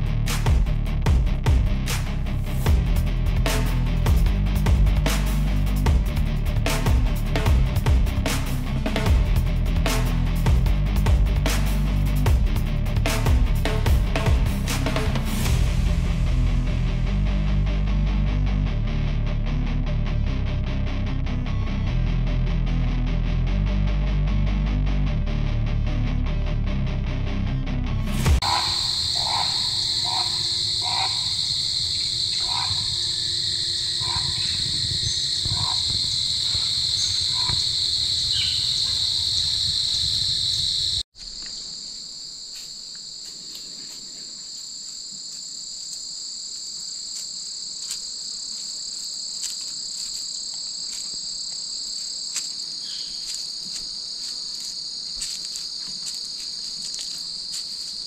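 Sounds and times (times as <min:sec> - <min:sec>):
crickets and insects trilling: 0:28.4 - 0:58.0.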